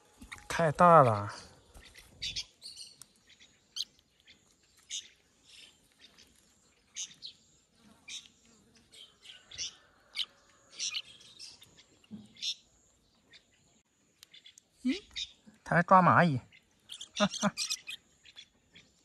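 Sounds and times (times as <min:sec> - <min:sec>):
fledgling birds chirping: 0:00.0 - 0:19.0.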